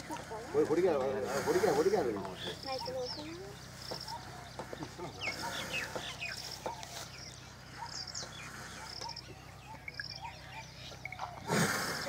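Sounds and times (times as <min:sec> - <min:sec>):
birds chirping: 0:00.0 - 0:12.0.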